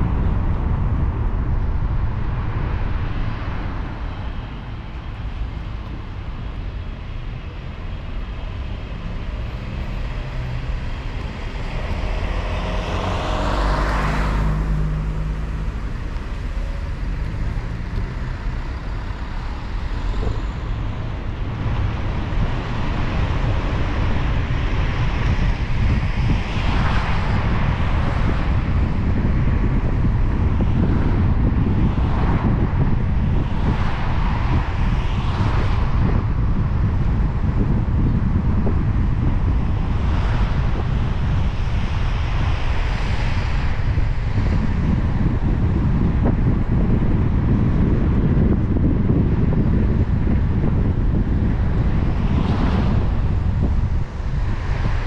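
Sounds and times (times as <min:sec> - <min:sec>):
road rumble and tyre hiss: 0:00.0 - 0:55.0
passing vehicle swish: 0:08.9 - 0:46.1, 0:49.5 - 0:55.0.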